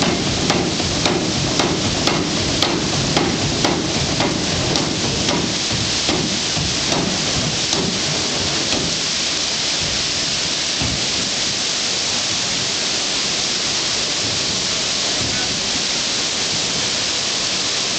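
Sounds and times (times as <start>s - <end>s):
trip hammer striking: 0.0s - 9.0s
water rushing over water wheel: 0.0s - 17.9s.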